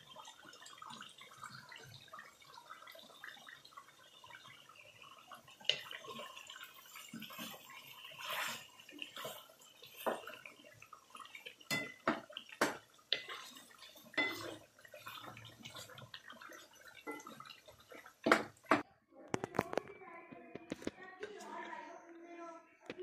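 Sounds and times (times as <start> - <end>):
gravy bubbling and sizzling: 0.0 - 22.1
wooden spatula knocking on pan: 11.7 - 13.3, 18.2 - 18.9.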